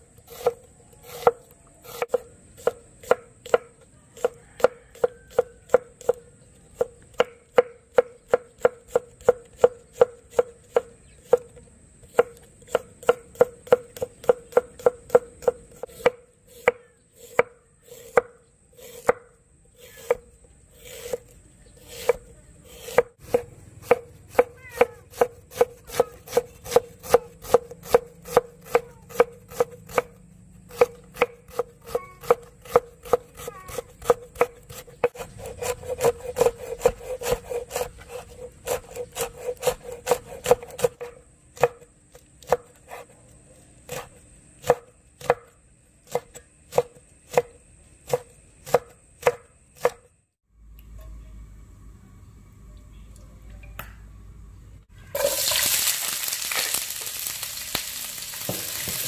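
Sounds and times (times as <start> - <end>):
knife chopping on wooden board: 6.8 - 19.3, 20.8 - 43.2, 43.9 - 50.1, 58.4 - 59.0.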